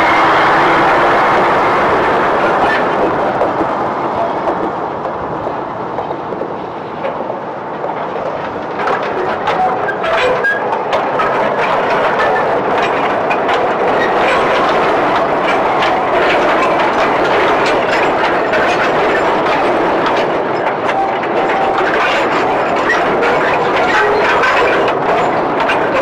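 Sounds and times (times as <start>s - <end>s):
railway wagon wheels clattering: 0.0s - 26.0s.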